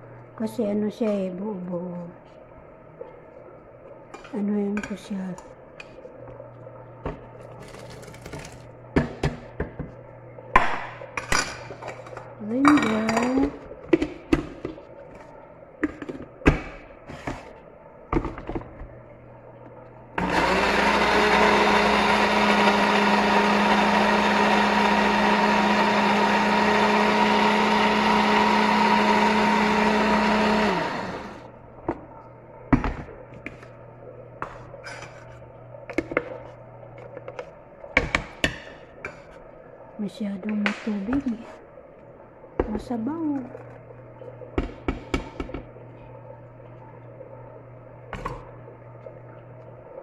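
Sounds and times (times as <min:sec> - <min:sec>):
blender motor running: 0:20.2 - 0:31.4.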